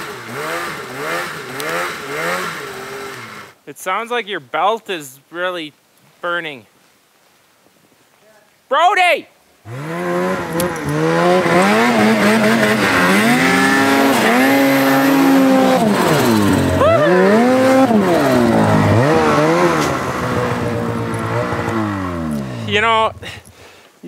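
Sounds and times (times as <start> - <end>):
snowmobile engine revving: 0.0 - 3.6, 9.6 - 23.5.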